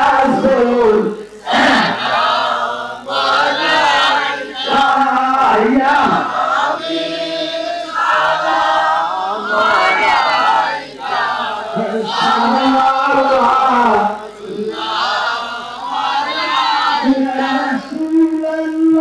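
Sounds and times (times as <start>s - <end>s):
man chanting into a microphone: 0.0s - 2.0s, 4.5s - 7.8s, 11.6s - 14.9s, 17.0s - 19.0s.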